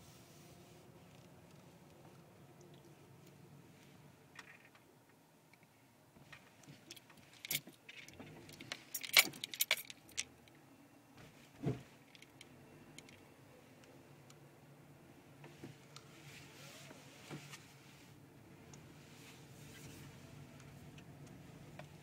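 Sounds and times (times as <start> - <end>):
metallic jingling and clicking: 6.8 - 10.5.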